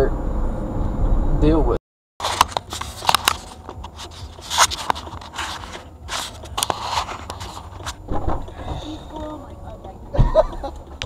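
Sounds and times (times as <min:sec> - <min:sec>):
camera handling scraping: 0:02.2 - 0:08.1.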